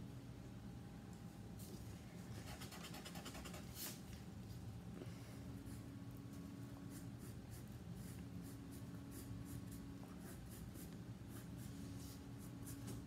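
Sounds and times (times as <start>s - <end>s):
faint steady hum: 0.0s - 13.0s
pencil sketching on paper: 6.9s - 13.0s.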